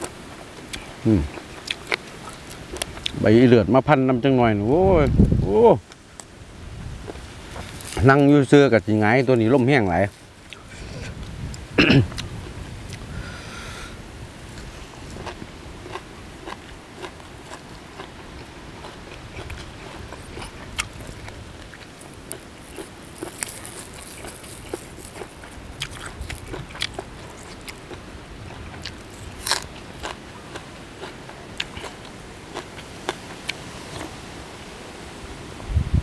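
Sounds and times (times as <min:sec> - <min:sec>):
wet chewing sounds: 0:00.0 - 0:03.2, 0:07.0 - 0:08.3, 0:09.1 - 0:13.1, 0:14.5 - 0:34.2
sharp crunches: 0:18.8 - 0:34.2.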